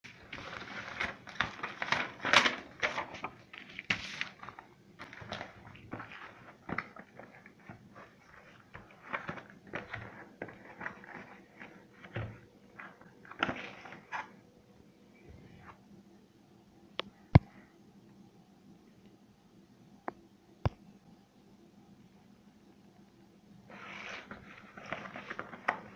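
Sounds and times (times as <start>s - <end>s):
cardboard packaging rustling: 0.1s - 14.4s, 23.7s - 25.9s.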